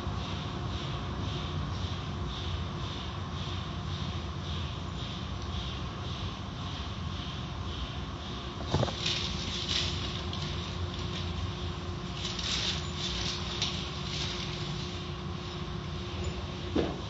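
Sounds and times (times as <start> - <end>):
car wash machine rumble: 7.4 - 17.0.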